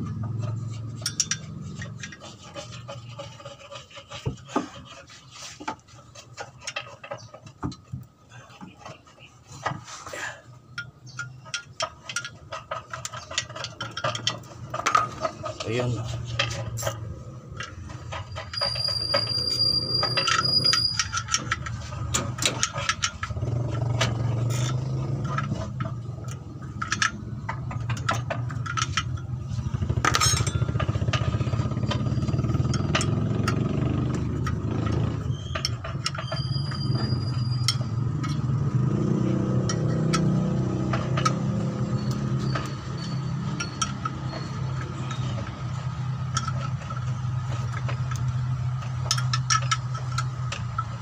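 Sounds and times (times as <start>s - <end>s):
wrench clicking on bolts: 0.4s - 3.6s, 10.7s - 51.0s
thin high squeal: 18.2s - 21.7s, 35.2s - 38.0s, 41.4s - 45.4s.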